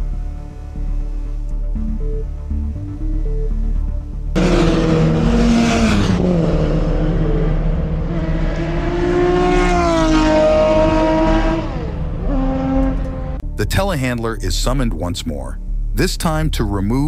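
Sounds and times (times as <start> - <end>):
race car engines passing: 4.4 - 13.4.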